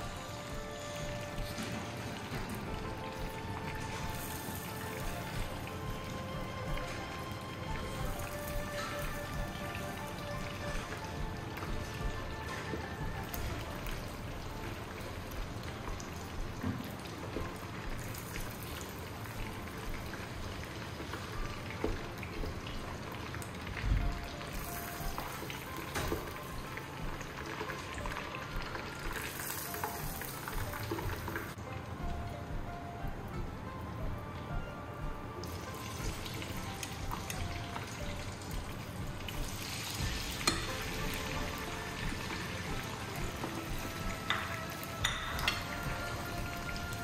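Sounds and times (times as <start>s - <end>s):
chicken sizzling in hot oil: 0.0s - 31.6s, 35.5s - 47.0s
metal tongs clinking on pan: 40.4s - 40.7s.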